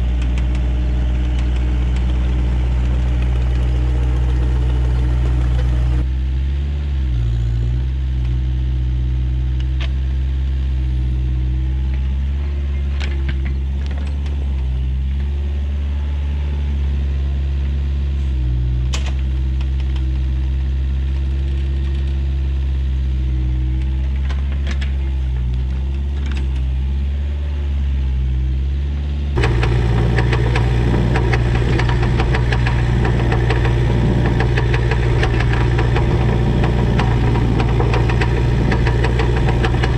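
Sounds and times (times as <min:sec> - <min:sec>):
excavator diesel engine running: 0:00.0 - 0:07.7, 0:29.3 - 0:39.9
machine clanking: 0:29.4 - 0:39.9.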